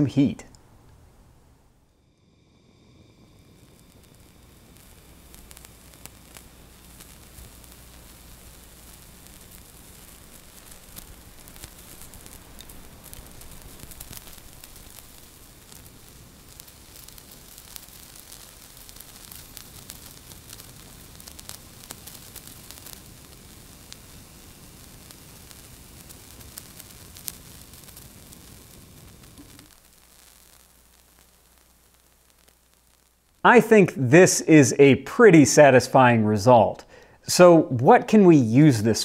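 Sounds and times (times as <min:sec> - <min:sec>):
gas burner flame hissing: 0:01.4 - 0:35.9
faint crackles and ticks: 0:02.8 - 0:33.7.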